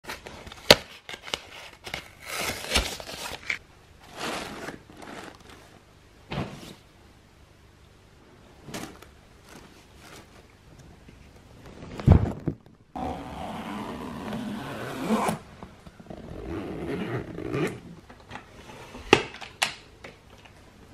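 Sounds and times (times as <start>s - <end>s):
clothes rustling: 8.6s - 12.4s.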